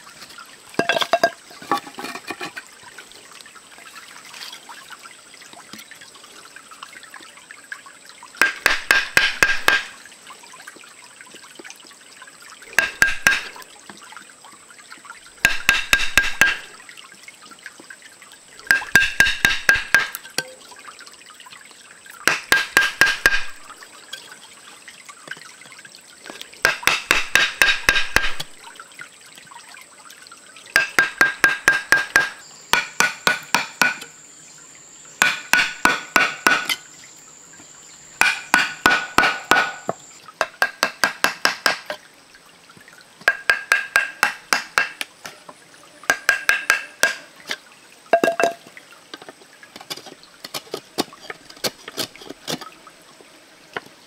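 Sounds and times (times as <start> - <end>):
knife chopping bamboo: 8.4 - 9.9, 15.4 - 16.6, 18.7 - 20.1, 22.3 - 23.6, 26.6 - 28.5, 30.8 - 34.1, 35.2 - 36.8, 38.2 - 41.9, 43.3 - 45.0, 46.1 - 47.2.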